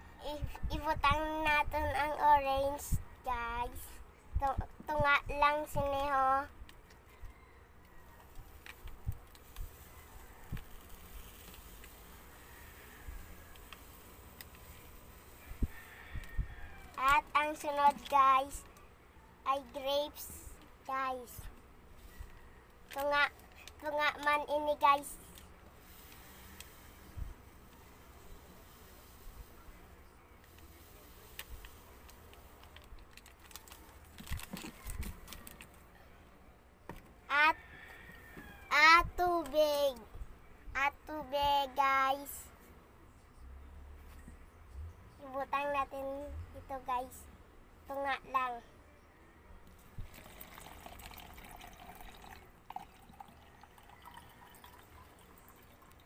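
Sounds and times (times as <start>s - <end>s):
plastic sachet crinkling: 32.3s - 35.8s
water pouring into plastic jar: 50.0s - 56.0s
water dripping: 50.1s - 56.0s.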